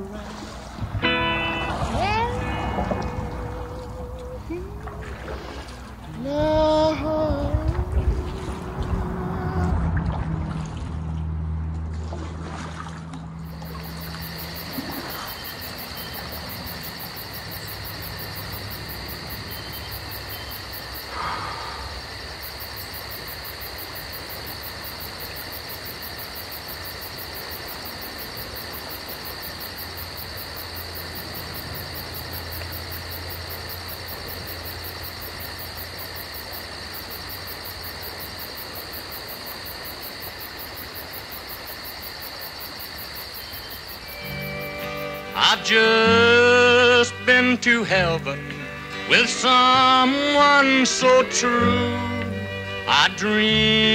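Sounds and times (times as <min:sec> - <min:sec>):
brief loud sound: 0:01.1 - 0:04.0
low motor hum: 0:01.7 - 0:15.0
insects chirping in rapid trill: 0:13.4 - 0:53.9.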